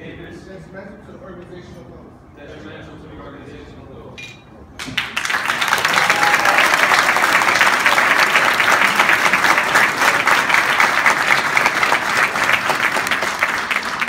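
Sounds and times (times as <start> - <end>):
audience applauding: 4.8 - 14.0
hands clapping close by: 4.8 - 14.0.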